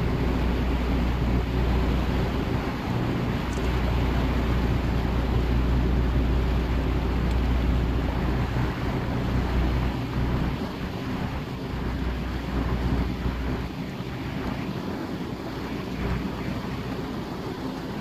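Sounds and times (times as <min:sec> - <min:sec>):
boat motor droning: 0:00.0 - 0:18.0
water washing along hull: 0:00.0 - 0:18.0.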